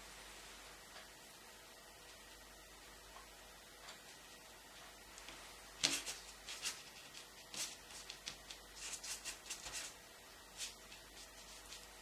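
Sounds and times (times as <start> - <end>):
paint brush dabbing and scraping: 5.8 - 12.0.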